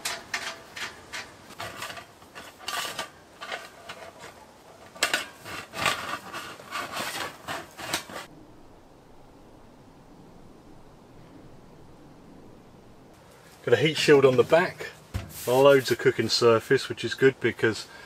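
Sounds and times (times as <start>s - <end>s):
metal pipe sections scraping: 0.0s - 8.3s, 13.4s - 16.5s.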